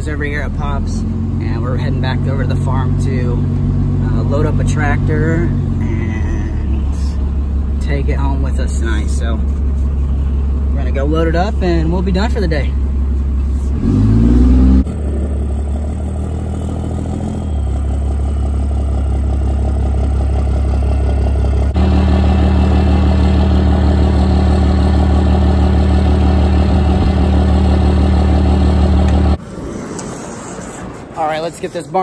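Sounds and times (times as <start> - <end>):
diesel engine running: 0.0 - 32.0.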